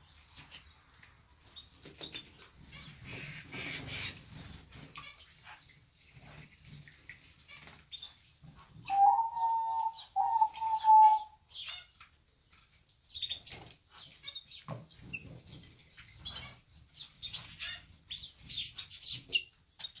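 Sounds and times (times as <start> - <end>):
high bird chirps: 8.9 - 11.8.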